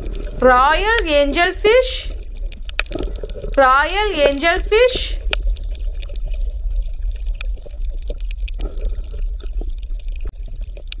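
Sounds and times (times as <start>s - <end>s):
low underwater rumble: 0.0s - 1.2s
crackling clicks: 2.1s - 3.6s, 5.2s - 11.0s.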